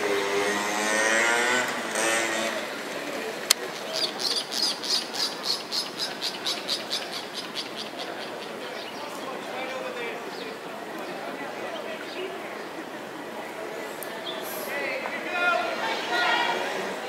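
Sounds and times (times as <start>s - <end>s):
car engine: 0.0s - 3.6s.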